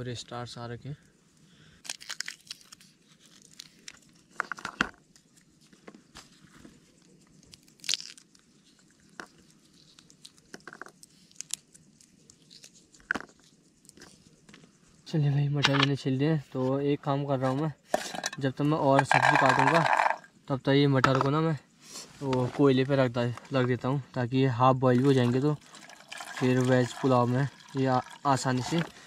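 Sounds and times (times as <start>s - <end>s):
pea pods snapping and tearing: 1.8s - 5.2s, 7.3s - 14.1s.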